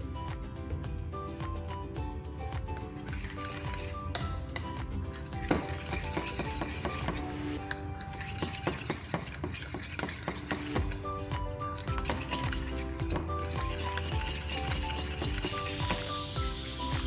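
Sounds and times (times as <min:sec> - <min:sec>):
background music: 0:00.0 - 0:17.0
spoon scraping ceramic bowl: 0:03.0 - 0:04.7, 0:05.4 - 0:10.9, 0:11.7 - 0:15.7.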